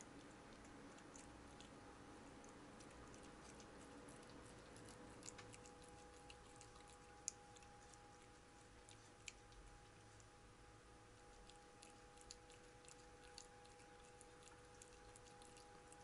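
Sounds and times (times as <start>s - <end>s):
cat licking and chewing food: 0.0s - 16.0s
faint steady hum: 0.0s - 16.0s.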